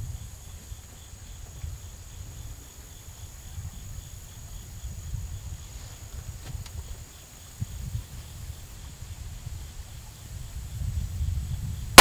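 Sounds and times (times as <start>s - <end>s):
insects chirping: 0.0s - 12.0s.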